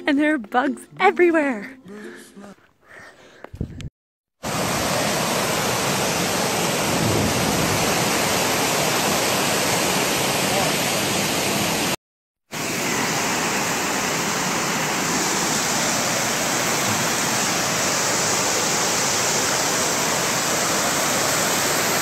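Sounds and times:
waterfall rushing over rocks: 4.4 - 22.0.

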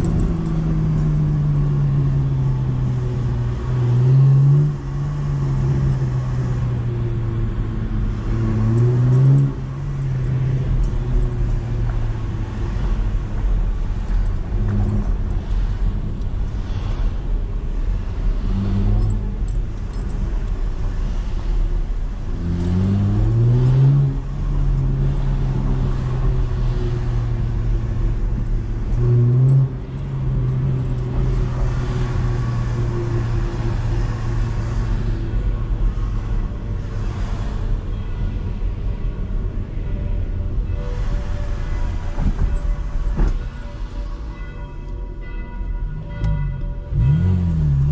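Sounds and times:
car engine droning: 0.0 - 47.9
engine revving: 46.9 - 47.9.

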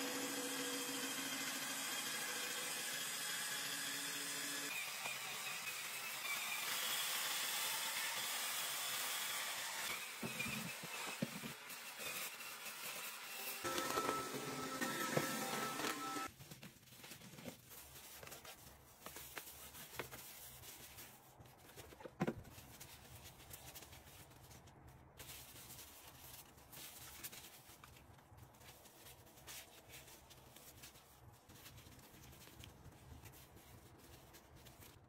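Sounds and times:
tissue rubbing and rustling: 15.4 - 35.0.

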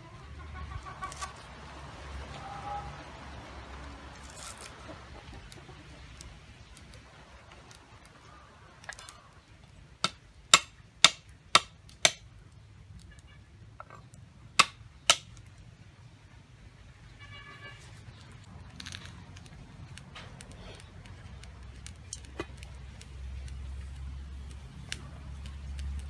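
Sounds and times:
cleaver chopping on wooden board: 10.0 - 12.2, 14.6 - 15.3.

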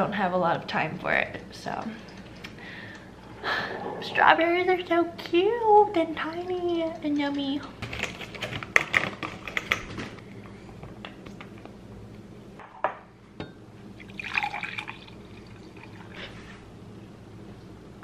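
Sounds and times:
coffee pouring into a mug: 14.0 - 16.2.

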